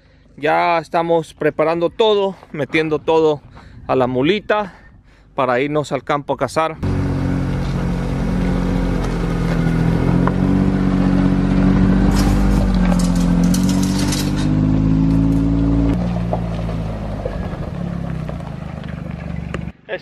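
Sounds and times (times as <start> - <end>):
utility vehicle engine revving: 6.8 - 19.8
clattering: 11.5 - 16.6.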